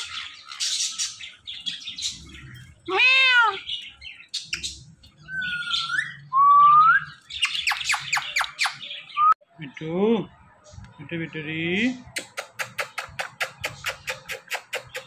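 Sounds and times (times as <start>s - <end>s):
parakeet mimicking cat meow: 2.9s - 3.7s
rising whistles: 5.2s - 7.2s.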